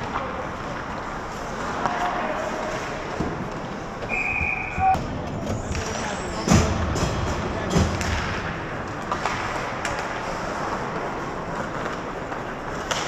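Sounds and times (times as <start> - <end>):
ice hockey knocks and cracks: 5.6 - 13.0.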